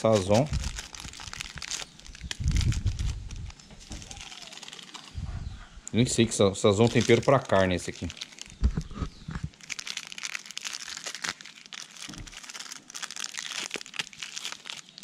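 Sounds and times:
foil sachet crinkling and tearing: 0:00.0 - 0:05.2, 0:06.6 - 0:15.0.

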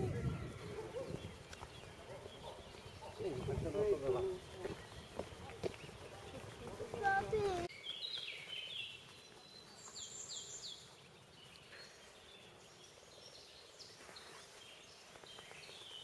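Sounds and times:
small birds singing: 0:00.0 - 0:16.0
faint outdoor hiss: 0:02.0 - 0:16.0.

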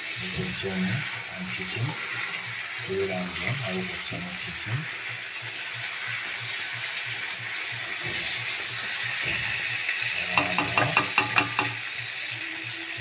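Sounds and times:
meat sizzling in oil: 0:00.0 - 0:13.0
spatula scraping pan: 0:07.9 - 0:11.8.

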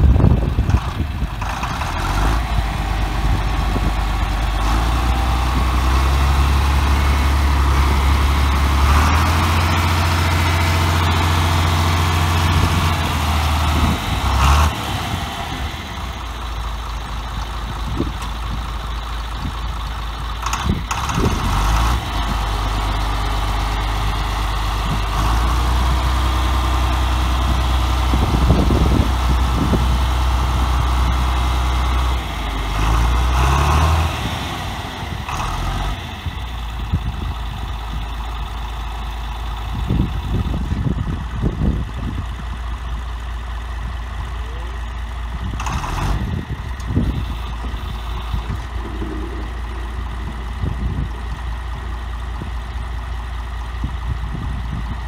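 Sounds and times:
tractor engine droning: 0:00.0 - 0:55.0.

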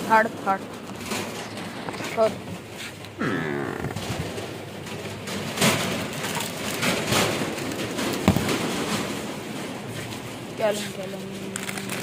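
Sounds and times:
freezer lid handling: 0:06.0 - 0:09.2
sharp knocks: 0:08.2 - 0:09.2
snack packets crackling: 0:11.0 - 0:12.0.

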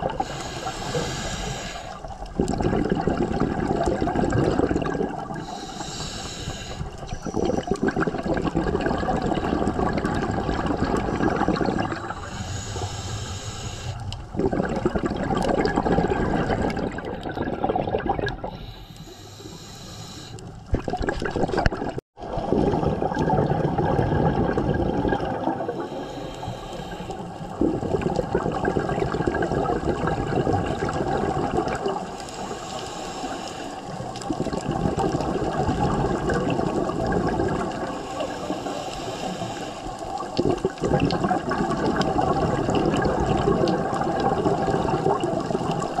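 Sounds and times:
bubbling regulator exhaust: 0:00.0 - 0:46.0
hissing regulator inhales: 0:00.1 - 0:02.2, 0:05.4 - 0:07.8, 0:11.8 - 0:14.3, 0:18.5 - 0:20.7, 0:25.7 - 0:27.5, 0:32.0 - 0:34.2, 0:37.8 - 0:40.2.

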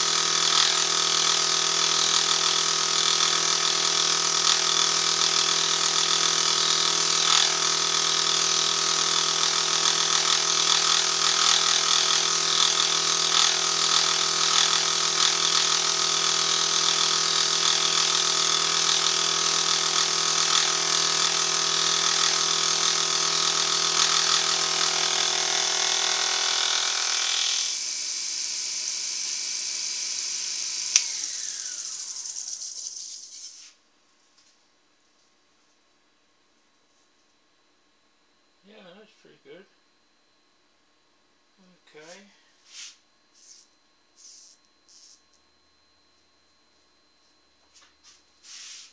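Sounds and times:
milling machine cutting metal: 0:00.0 - 0:32.8
motor winding down: 0:00.0 - 0:33.5
spindle motor running: 0:00.0 - 0:33.6.

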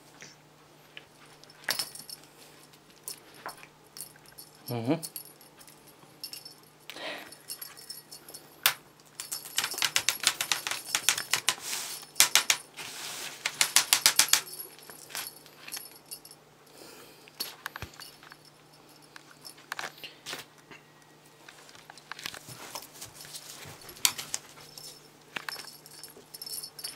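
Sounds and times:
light clicks and rattles of toy: 0:07.2 - 0:16.4, 0:21.5 - 0:26.9.

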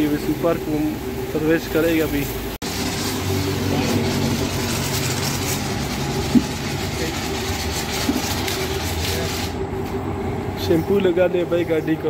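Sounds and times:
water spraying hiss: 0:00.0 - 0:09.5
pressure washer pump humming: 0:00.0 - 0:12.0.

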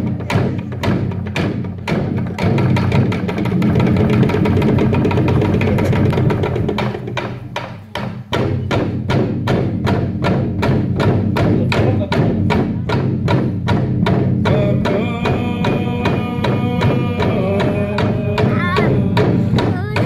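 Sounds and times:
drums beating a steady rhythm: 0:00.0 - 0:20.0
people singing: 0:14.4 - 0:20.0.

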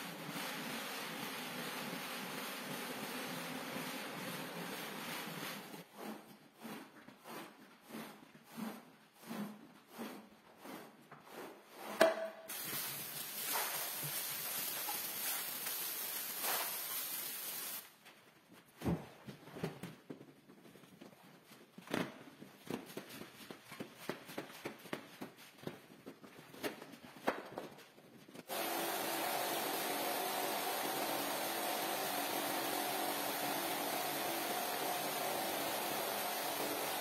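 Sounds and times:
squeegee working water: 0:00.0 - 0:17.8, 0:28.5 - 0:37.0
steady hiss: 0:12.5 - 0:17.9.

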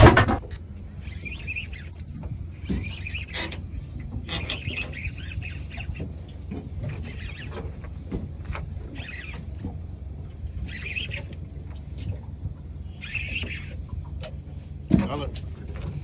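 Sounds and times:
boat engine idling: 0:00.1 - 0:16.0
fishing reel squeaks: 0:00.9 - 0:09.8, 0:10.5 - 0:12.0, 0:12.8 - 0:14.4
fishing reel clicks: 0:01.0 - 0:03.6, 0:04.3 - 0:09.7, 0:10.6 - 0:11.4, 0:12.9 - 0:14.4.

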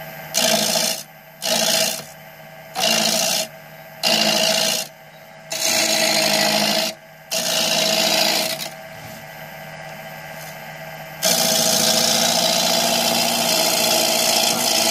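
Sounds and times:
turning tool cutting wood: 0:00.3 - 0:02.1, 0:02.8 - 0:04.9, 0:05.5 - 0:08.8, 0:11.2 - 0:14.9
lathe humming: 0:00.3 - 0:14.9.

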